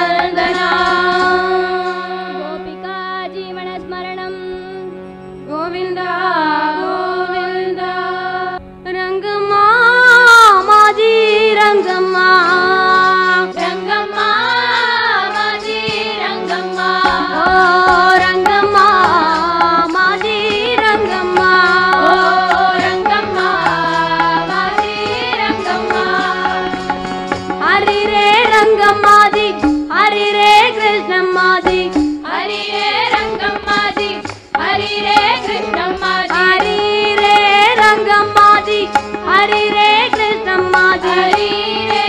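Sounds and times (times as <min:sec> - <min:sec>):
girls singing devotional song: 0:00.0 - 0:04.8, 0:05.6 - 0:42.0
harmonium: 0:00.0 - 0:42.0
tabla strokes: 0:15.8 - 0:30.4, 0:31.6 - 0:42.0.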